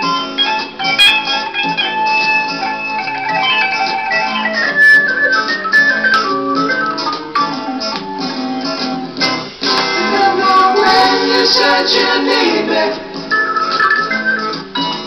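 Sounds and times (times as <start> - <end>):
heavy psychedelic rock with guitar: 0.0 - 10.8.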